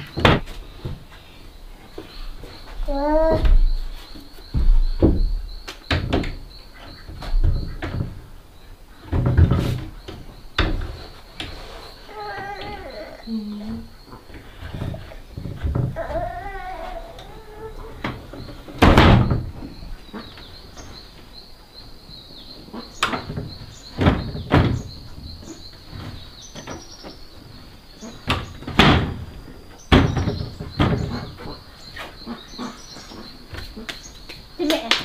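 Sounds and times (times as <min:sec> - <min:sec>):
wooden shutters knocking: 0:00.0 - 0:01.1, 0:02.8 - 0:03.8, 0:04.4 - 0:08.4, 0:09.0 - 0:11.5, 0:14.6 - 0:19.9, 0:23.0 - 0:27.2, 0:28.2 - 0:31.6.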